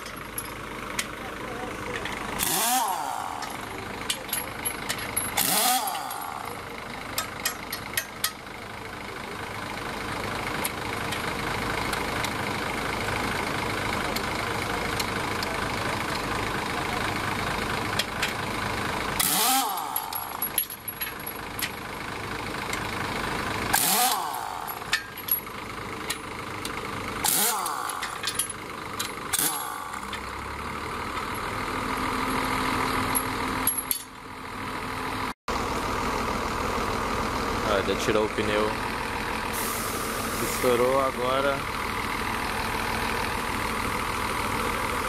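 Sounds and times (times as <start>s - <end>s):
engine idling: 0.0s - 45.0s
impact wrench bursts: 2.0s - 8.4s, 19.2s - 21.3s, 23.7s - 25.4s, 27.2s - 30.2s
metallic clicks: 27.5s - 30.3s.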